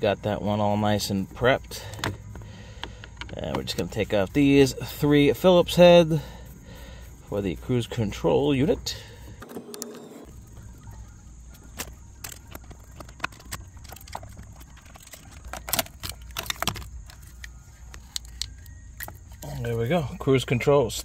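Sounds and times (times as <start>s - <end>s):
light clicks and metal ticks: 11.6s - 20.0s.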